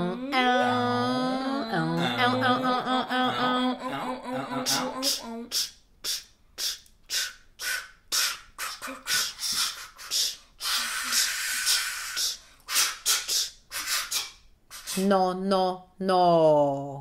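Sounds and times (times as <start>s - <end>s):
voice making hissing sounds: 4.4s - 15.1s.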